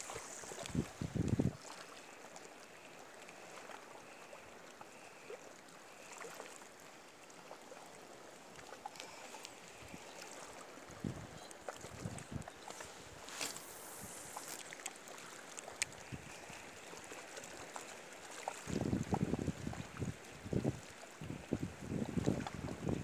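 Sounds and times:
wind hiss: 0.0 - 1.9, 12.0 - 14.8
rippling water: 0.0 - 23.0.

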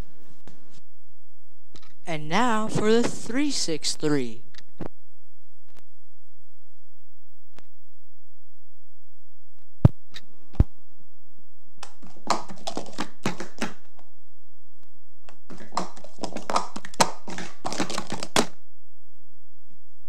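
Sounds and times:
sharp knocks: 11.8 - 13.8
plastic cups clattering: 11.8 - 13.9, 15.3 - 18.6.

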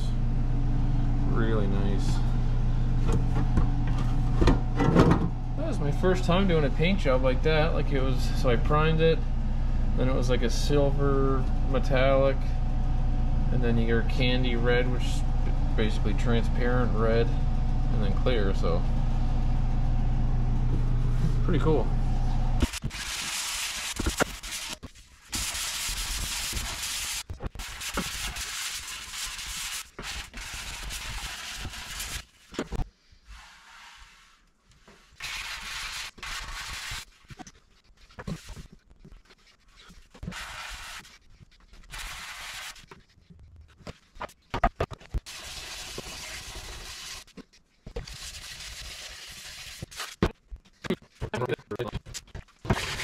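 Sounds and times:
sandpaper rubbing on paint: 22.8 - 32.3, 33.3 - 43.2.

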